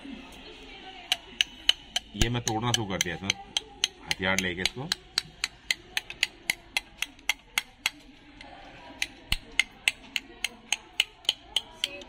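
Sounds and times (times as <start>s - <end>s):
tool tapping snail shell: 1.1s - 12.0s.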